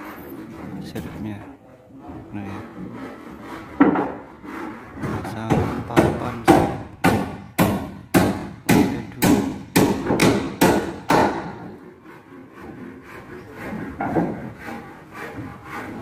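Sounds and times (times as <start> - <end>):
hammer striking nails into wood: 5.0 - 11.8, 14.0 - 14.5.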